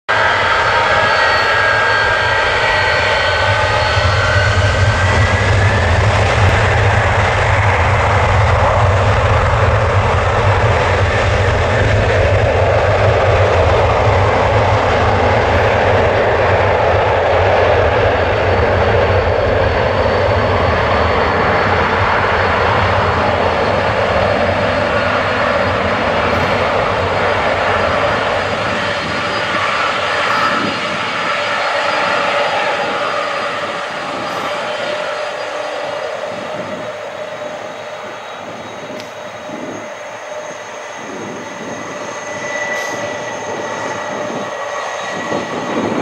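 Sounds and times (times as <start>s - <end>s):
jet engines spooling up: 0.1s - 46.0s.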